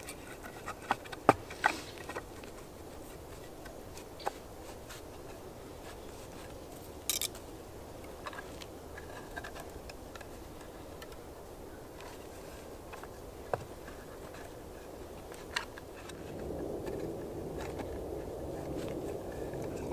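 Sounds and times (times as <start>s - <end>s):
log scraping in hands: 0.0s - 7.5s
faint steady background hiss: 0.0s - 19.9s.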